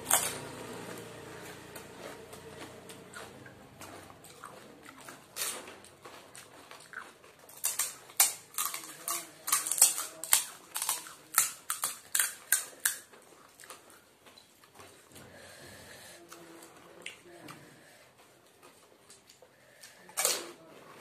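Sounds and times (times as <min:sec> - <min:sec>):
crunching of crisp shells: 0:00.0 - 0:15.0.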